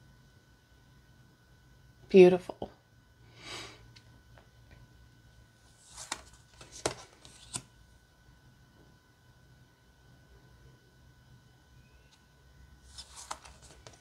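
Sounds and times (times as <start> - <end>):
cards sliding and swishing: 5.7 - 7.7, 12.8 - 14.0.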